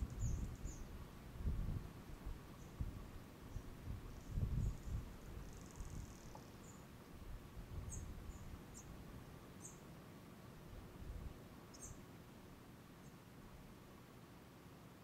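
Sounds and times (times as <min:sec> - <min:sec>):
small bird chirping: 0:00.0 - 0:00.9, 0:03.5 - 0:06.9, 0:07.8 - 0:09.0, 0:09.6 - 0:09.8, 0:11.7 - 0:12.0.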